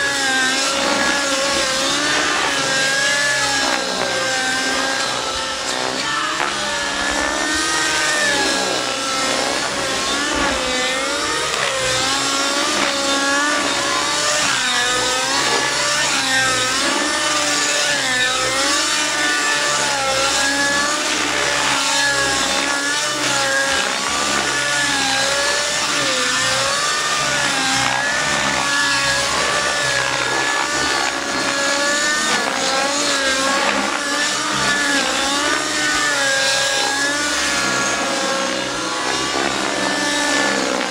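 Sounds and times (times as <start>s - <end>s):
model helicopter engine whine: 0.0s - 40.9s.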